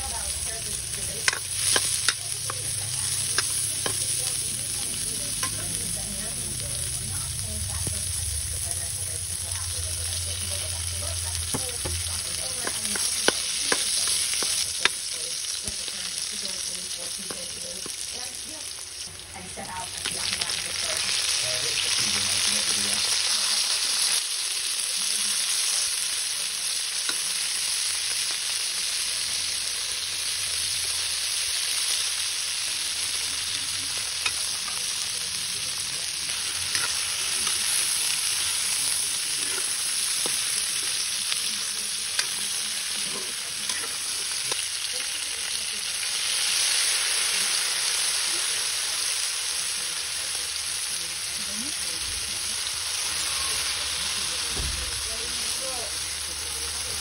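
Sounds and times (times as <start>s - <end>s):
food sizzling in oil: 0.0s - 57.0s
metal spatula scraping pan: 36.4s - 37.9s.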